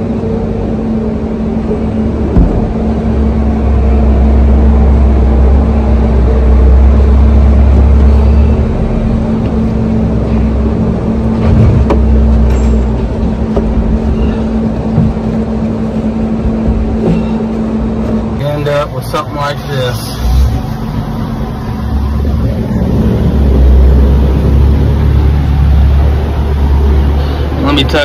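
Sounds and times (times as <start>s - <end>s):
mechanical hum with deep rumble: 0.0s - 28.0s.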